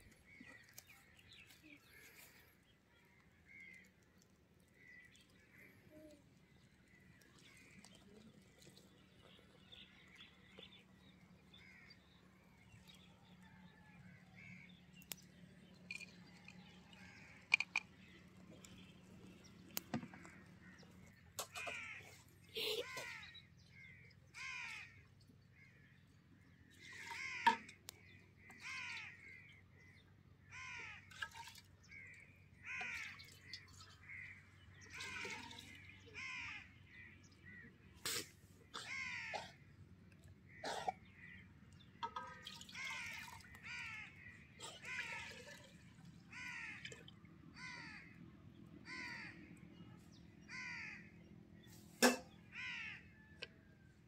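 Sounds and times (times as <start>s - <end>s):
crows cawing: 21.5s - 22.1s, 24.3s - 25.0s, 26.9s - 27.8s, 28.5s - 29.4s, 30.5s - 31.1s, 32.6s - 33.3s, 34.2s - 37.6s, 38.8s - 39.5s, 42.1s - 45.6s, 46.3s - 46.9s, 47.6s - 48.2s, 48.8s - 49.4s, 50.5s - 51.2s, 52.5s - 53.4s.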